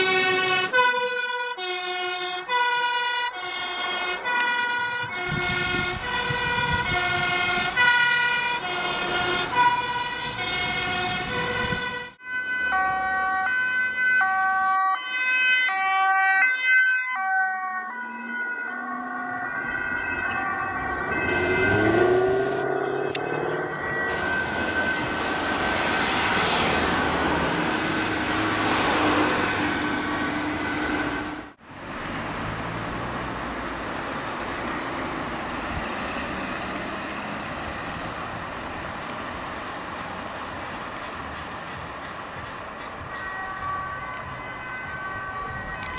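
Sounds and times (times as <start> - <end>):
two-tone emergency sirens: 0.0 - 41.0, 42.2 - 45.9
road traffic: 0.0 - 45.9
vehicle passing close: 17.9 - 40.6.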